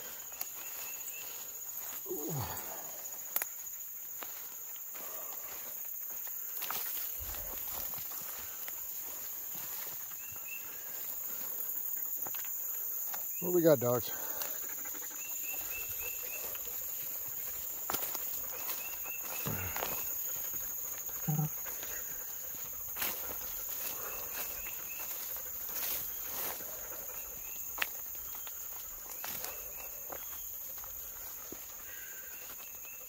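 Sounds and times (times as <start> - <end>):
footsteps crunching through leaves: 0.0 - 2.9, 3.5 - 14.6, 15.4 - 21.1, 21.7 - 32.8
high insect drone: 0.0 - 33.0
quick insect chirps: 0.0 - 33.0.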